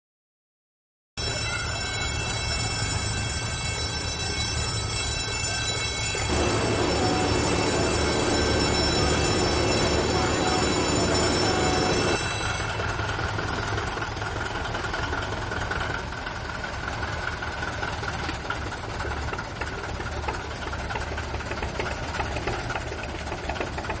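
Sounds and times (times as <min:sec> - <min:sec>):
faint whine: 0:06.3 - 0:12.3
engine running with low rumble: 0:06.3 - 0:24.0.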